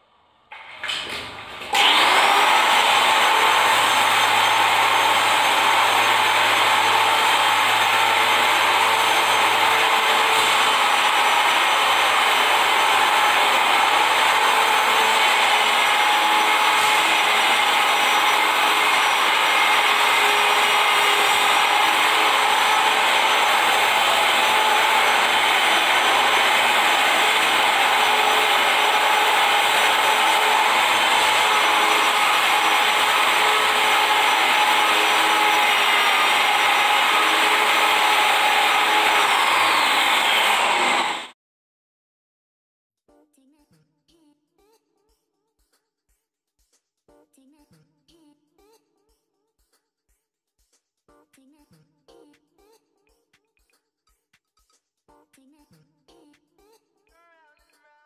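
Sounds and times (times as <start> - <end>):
marble polisher whining: 0.7 - 41.4.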